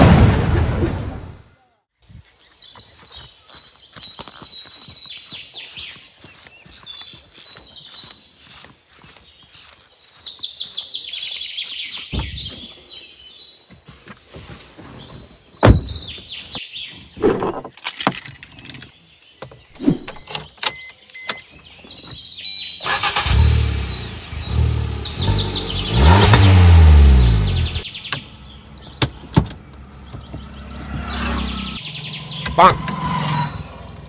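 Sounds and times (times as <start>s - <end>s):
motor vehicle passing: 29.6s - 34.0s.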